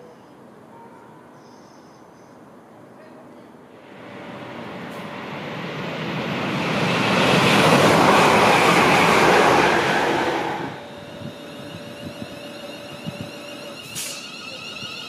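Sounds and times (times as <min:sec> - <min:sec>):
electric train passing at speed: 0:03.7 - 0:15.0.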